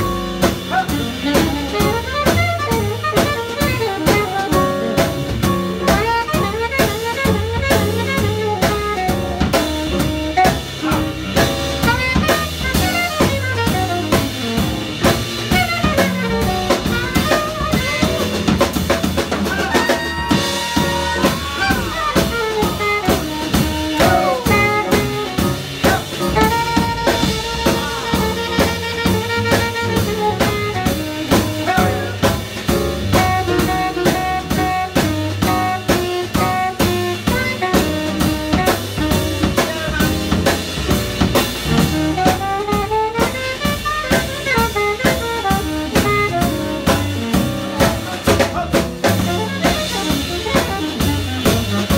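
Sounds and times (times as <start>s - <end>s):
drum kit: 0.0s - 51.9s
upright bass: 0.0s - 51.9s
saxophone solo: 0.7s - 51.9s.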